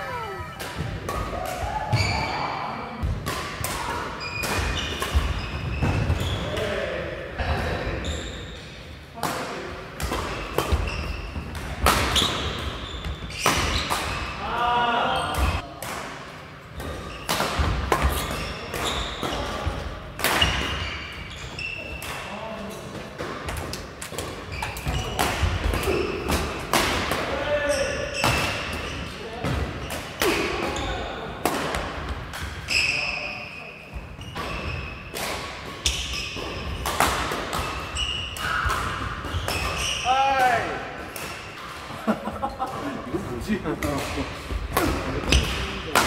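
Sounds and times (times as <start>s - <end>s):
shoes squeaking on wooden floor: 0.0s - 1.0s
shoes squeaking on court floor: 0.0s - 1.2s, 1.9s - 2.4s, 4.1s - 6.6s, 8.0s - 8.6s, 10.2s - 14.4s, 18.0s - 19.7s, 20.4s - 22.9s, 24.2s - 26.1s, 32.6s - 35.1s, 35.8s - 40.1s.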